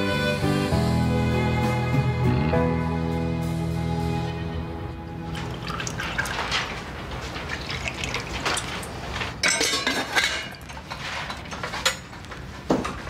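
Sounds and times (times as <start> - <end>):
tea pouring into a glass: 5.3 - 6.5
dishes and cutlery clattering: 7.5 - 13.0.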